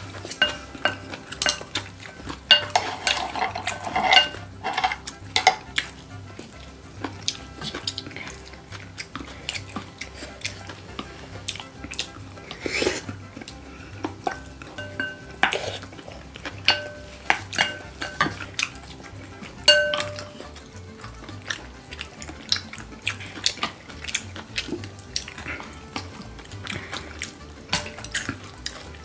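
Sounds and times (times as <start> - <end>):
wooden spoons clinking on bowls: 0.0 - 5.8, 13.5 - 29.0.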